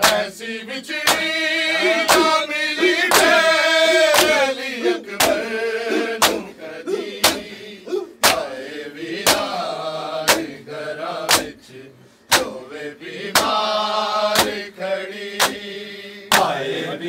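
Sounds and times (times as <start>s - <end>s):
men slapping chests: 0.0s - 0.3s, 1.0s - 8.6s, 9.2s - 9.6s, 10.2s - 10.6s, 11.2s - 11.6s, 12.3s - 12.7s, 13.3s - 13.7s, 14.3s - 14.7s, 15.3s - 15.7s, 16.3s - 16.6s
group of men chanting: 0.0s - 17.0s.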